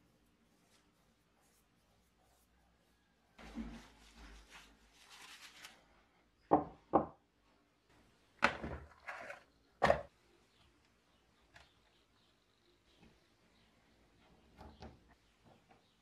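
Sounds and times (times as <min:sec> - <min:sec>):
paper towel rustling: 0:03.4 - 0:06.0
hard objects knocking on wooden bench: 0:06.5 - 0:07.2.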